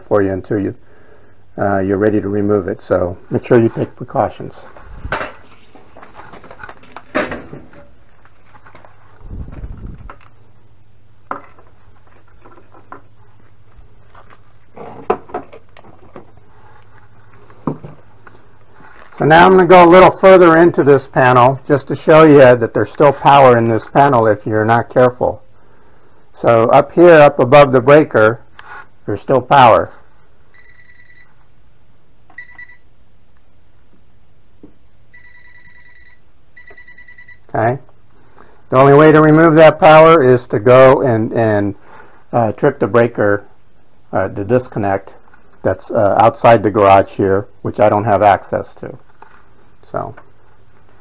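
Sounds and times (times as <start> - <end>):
low steady hum: 0.0 - 51.0
objects being handled: 4.6 - 10.6, 11.2 - 19.2
voltage tester beeping: 30.5 - 31.4, 32.3 - 32.9, 35.1 - 37.5.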